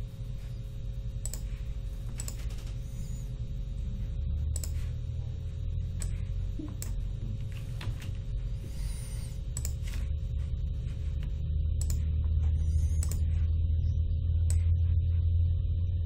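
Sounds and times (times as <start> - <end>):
steady low hum: 0.0 - 16.0
computer mouse clicking: 1.2 - 3.1, 4.5 - 4.9, 6.0 - 8.2, 9.5 - 10.1, 11.2 - 13.3.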